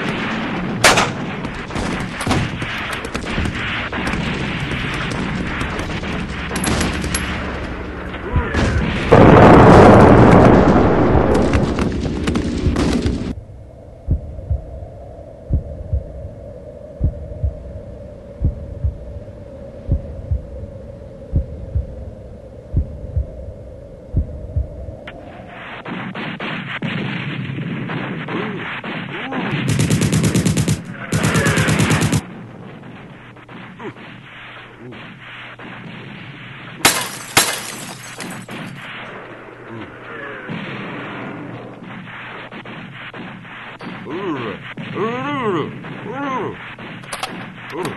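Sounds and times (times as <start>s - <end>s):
rapid machine-gun fire: 0.0s - 7.5s, 25.9s - 33.6s
gunfire and blasts: 0.0s - 13.4s, 25.5s - 47.9s
thudding heartbeat: 11.4s - 14.8s, 15.4s - 16.4s, 17.0s - 19.2s, 19.8s - 20.7s, 21.3s - 22.1s, 22.7s - 25.0s.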